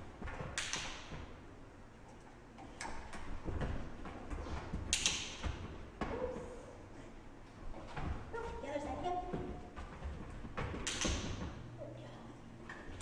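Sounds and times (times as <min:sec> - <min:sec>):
dog's feet on rubber floor: 0:00.0 - 0:11.9.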